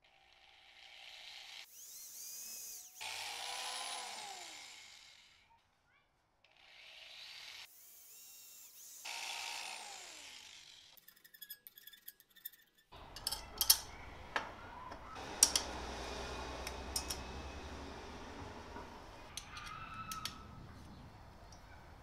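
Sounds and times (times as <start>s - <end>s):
cordless drill winding down: 1.6s - 5.4s, 15.2s - 19.4s
metal clinks and knocks: 13.0s - 15.8s.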